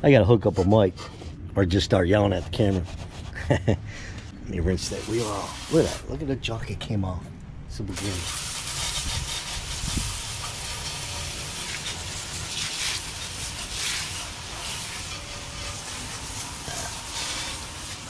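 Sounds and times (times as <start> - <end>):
garden hose spray hissing on wheel: 4.8 - 6.1, 8.0 - 18.0.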